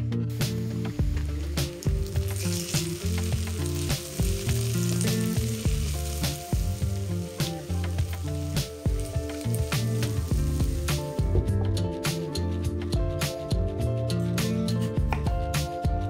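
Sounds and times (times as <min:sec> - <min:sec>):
food sizzling in hot oil: 0:00.3 - 0:12.2.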